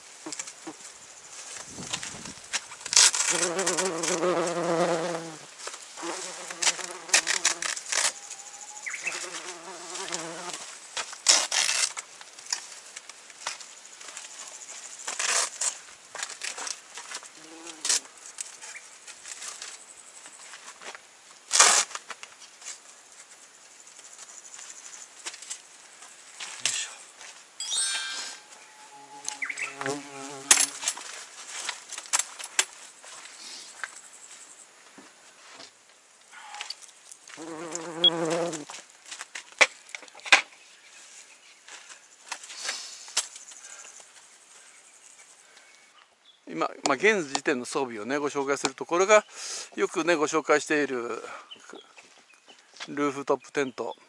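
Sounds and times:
flying insect buzzing: 3.2 - 5.4, 6.0 - 7.8, 28.6 - 30.8, 37.3 - 38.7.

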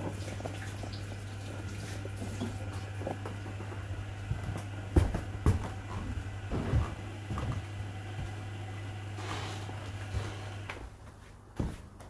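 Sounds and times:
water trickling: 0.0 - 3.0
dishwasher humming: 0.0 - 12.0.

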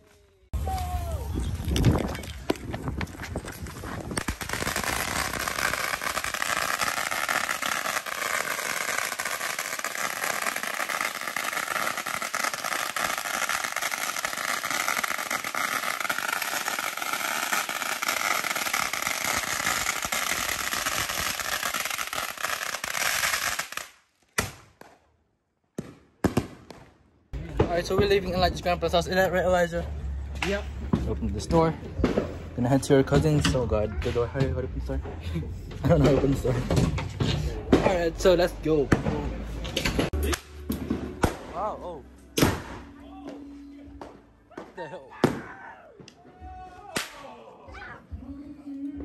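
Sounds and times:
firecrackers popping: 1.4 - 25.0, 39.8 - 41.7.

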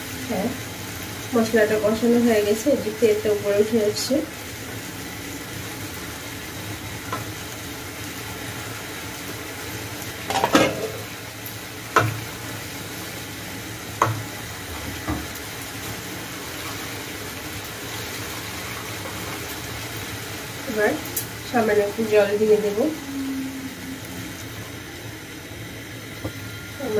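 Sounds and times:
masala sizzling in oil: 0.0 - 26.9
spatula scraping and knocking pan: 10.3 - 11.1.

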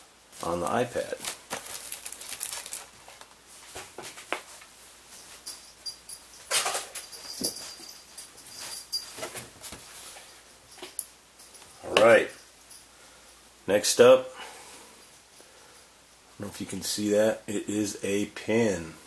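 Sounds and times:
plastic wrap rustling: 0.4 - 4.5.

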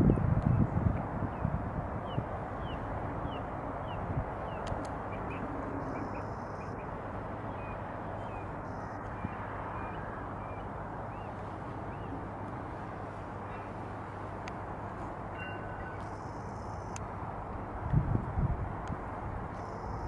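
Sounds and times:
jet engine noise: 0.0 - 20.0
faint bird chirps: 2.6 - 6.9.

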